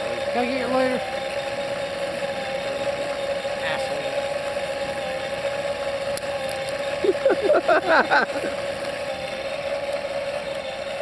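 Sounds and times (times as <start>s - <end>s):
motor humming: 0.0s - 11.0s.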